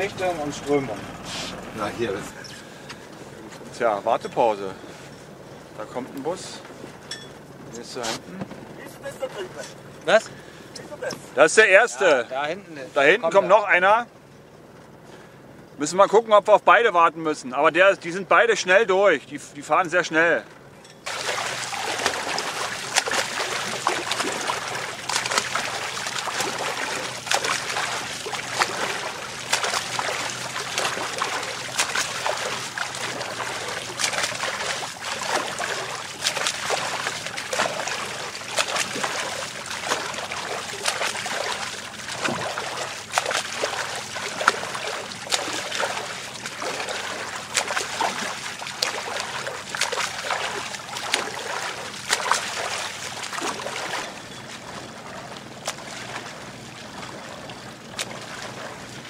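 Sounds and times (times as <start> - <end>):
swimmer splashing: 0.0 - 2.9, 21.0 - 59.0
dripping water: 20.8 - 58.8.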